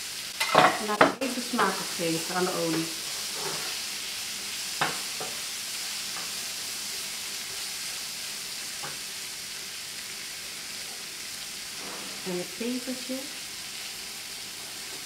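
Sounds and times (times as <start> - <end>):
onions sizzling in oil: 0.0 - 15.0
spatula knocking on pan: 4.8 - 5.4.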